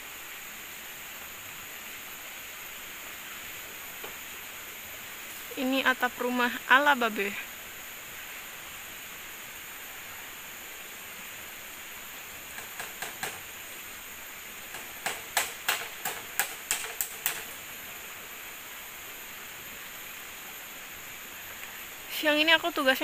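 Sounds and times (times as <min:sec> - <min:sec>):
forest insects droning: 0:00.0 - 0:23.0
hammer striking nails: 0:12.5 - 0:13.5, 0:14.7 - 0:17.6.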